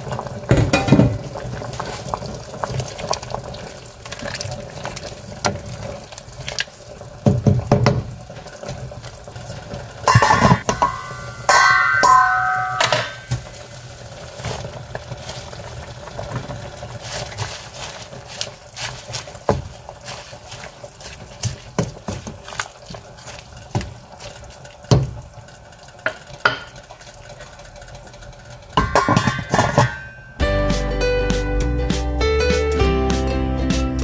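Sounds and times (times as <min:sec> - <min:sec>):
soup boiling in a pot: 0:00.0 - 0:30.1
wooden spoon knocking against pot: 0:10.1 - 0:13.3
pot lid ringing against rim: 0:10.1 - 0:13.4, 0:28.8 - 0:30.2.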